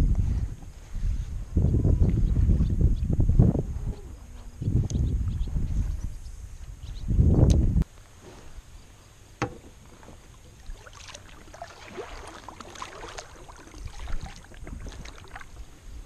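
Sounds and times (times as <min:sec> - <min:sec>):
paddle strokes in water: 0:09.4 - 0:16.0
water dripping off paddle: 0:10.5 - 0:15.6.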